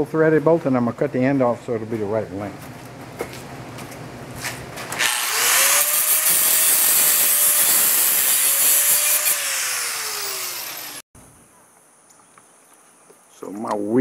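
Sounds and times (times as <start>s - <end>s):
angle grinder cutting bolt: 4.9s - 11.0s
grinder motor whine coasting down: 9.1s - 11.0s.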